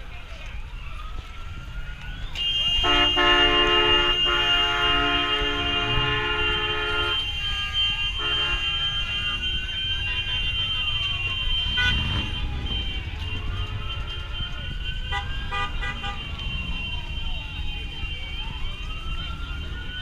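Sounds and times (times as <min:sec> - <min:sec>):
siren wailing: 0:00.4 - 0:20.0
car horns honking: 0:02.4 - 0:17.4.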